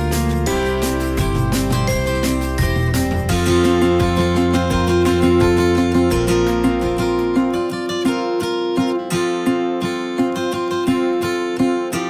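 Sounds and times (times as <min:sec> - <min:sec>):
strummed acoustic guitar: 0:00.0 - 0:12.0.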